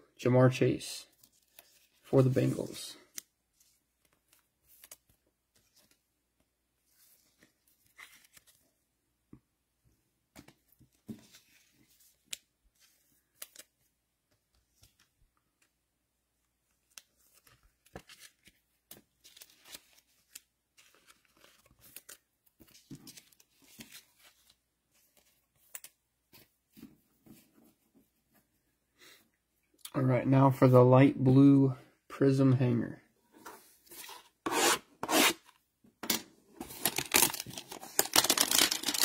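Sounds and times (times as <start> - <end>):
packaging crinkling and tearing: 36.7 - 39.0.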